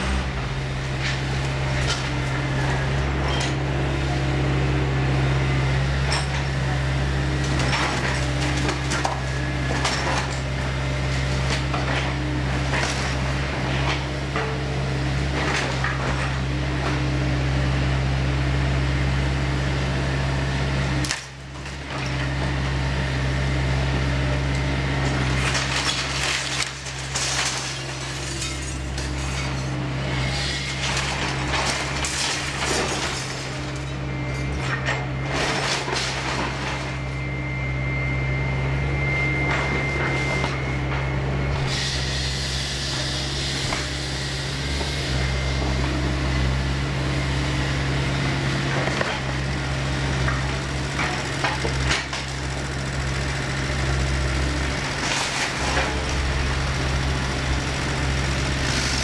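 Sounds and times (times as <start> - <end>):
excavator diesel engine running: 0.0 - 59.0
falling boards and debris clattering: 25.4 - 29.7, 30.7 - 33.9, 34.5 - 37.0.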